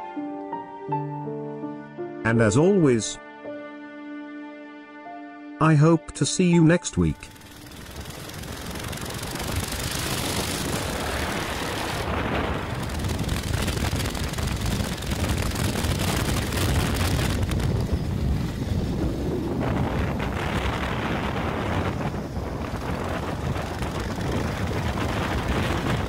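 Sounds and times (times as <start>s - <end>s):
motorcycle engine running: 7.2s - 26.0s
wind buffeting microphone: 7.4s - 26.0s.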